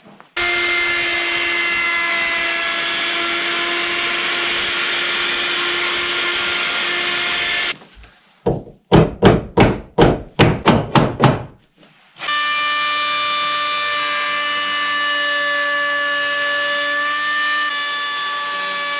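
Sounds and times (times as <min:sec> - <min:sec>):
circular saw running: 0:00.4 - 0:07.8.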